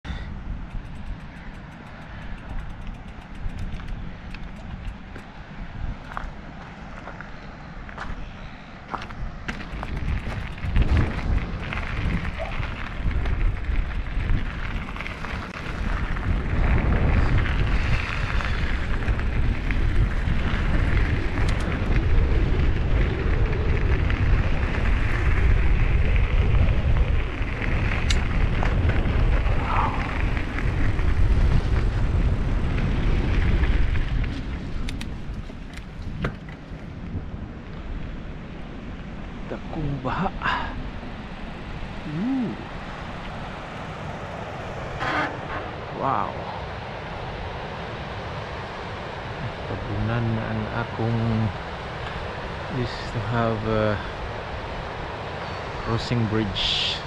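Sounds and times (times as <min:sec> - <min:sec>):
wind buffeting microphone: 0:00.0 - 0:57.0
bike clicks and rattles: 0:00.1 - 0:05.4, 0:06.0 - 0:06.4, 0:08.9 - 0:37.1
tyres rolling on gravel: 0:00.5 - 0:38.3.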